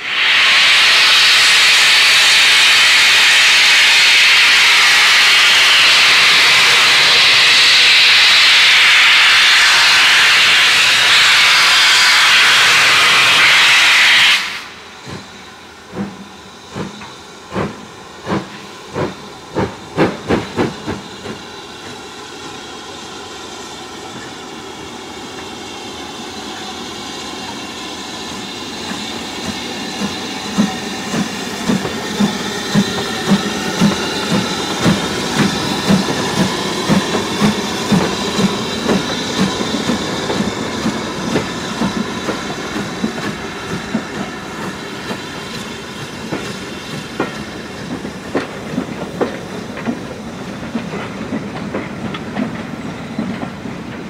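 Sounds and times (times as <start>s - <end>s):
steam locomotive exhaust beats: 0.0s - 54.0s
train running noise: 0.0s - 54.0s.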